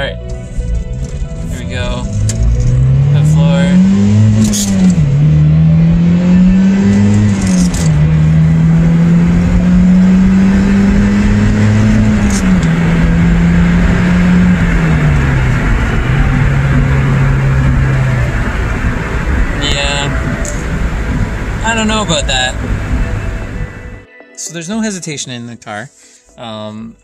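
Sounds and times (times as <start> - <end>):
car engine revving through gears: 0.0 - 24.0.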